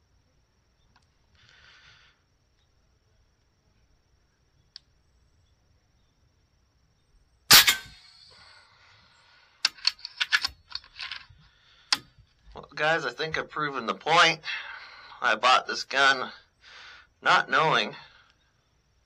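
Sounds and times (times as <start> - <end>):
air rifle shot crack: 7.5 - 8.2.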